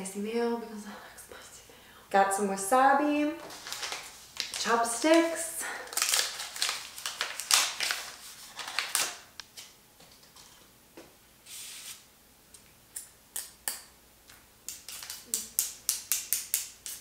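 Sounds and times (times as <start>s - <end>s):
paper sleeve rustling and crinkling: 3.4s - 5.3s, 5.9s - 9.3s.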